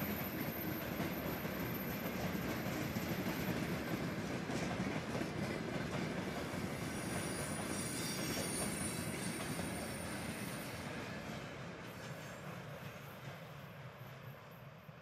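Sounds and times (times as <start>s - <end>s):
train wheels rumbling on rails: 0.0s - 15.0s
high-pitched wheel squeal: 7.0s - 10.8s.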